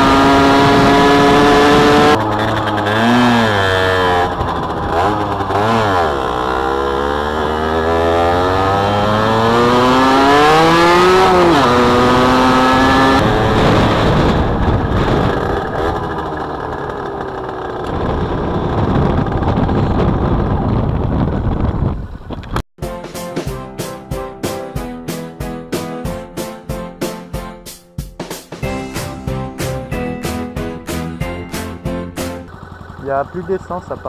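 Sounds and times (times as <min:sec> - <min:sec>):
rough rushing noise: 0:00.0 - 0:09.9
two-stroke motorcycle engine revving: 0:00.0 - 0:22.3, 0:31.5 - 0:34.0.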